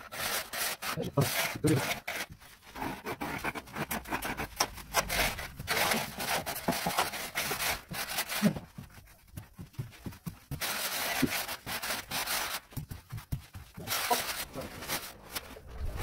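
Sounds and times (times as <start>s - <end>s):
shovel scraping wet screed: 4.3s - 8.6s.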